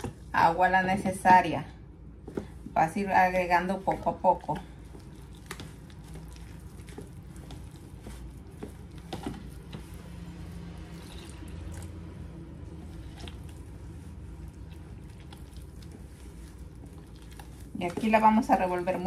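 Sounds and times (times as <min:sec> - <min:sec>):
hands kneading wet dough: 0:00.0 - 0:19.0
low steady hum: 0:00.0 - 0:19.0
water pouring: 0:10.7 - 0:12.1.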